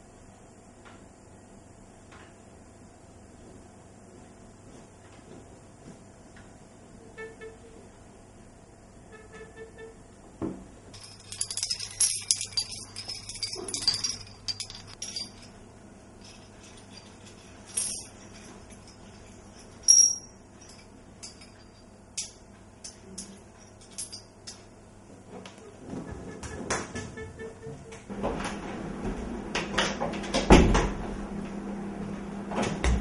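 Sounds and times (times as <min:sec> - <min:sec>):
light metallic jingling: 0:11.0 - 0:24.7.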